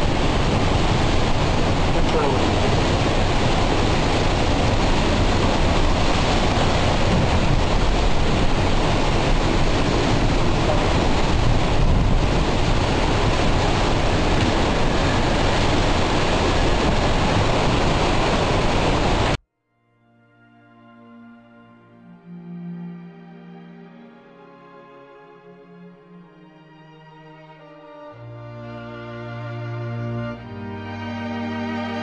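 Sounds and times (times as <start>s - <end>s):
driving rain: 0.0s - 19.4s
strong wind: 0.0s - 19.4s
wind buffeting microphone: 0.0s - 19.4s.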